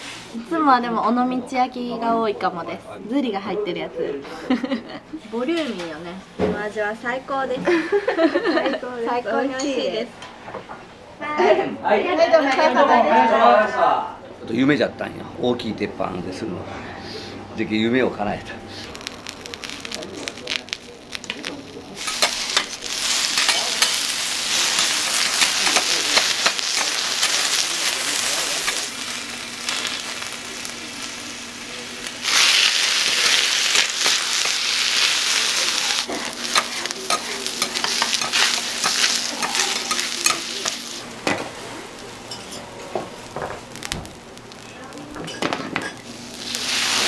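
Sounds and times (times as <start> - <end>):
food sizzling on griddle: 18.2 - 47.0.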